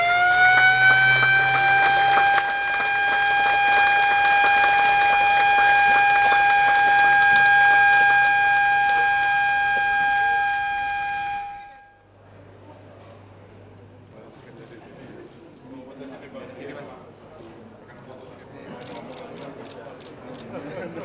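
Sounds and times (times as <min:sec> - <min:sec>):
siren wailing: 0:00.0 - 0:12.0.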